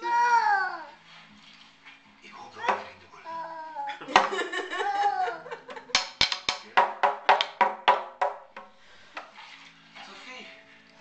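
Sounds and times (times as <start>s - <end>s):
toddler calling out: 0.0s - 1.0s.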